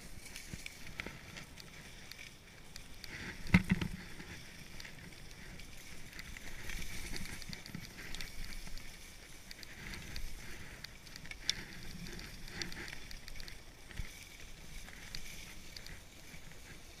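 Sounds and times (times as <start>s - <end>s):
skis scraping over snow: 0.0s - 17.0s.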